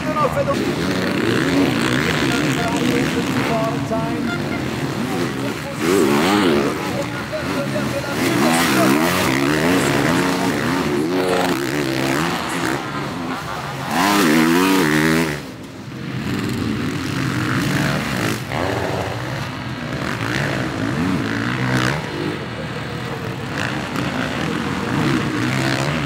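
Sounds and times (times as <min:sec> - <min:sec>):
motorbike engine revving: 0:00.0 - 0:26.0.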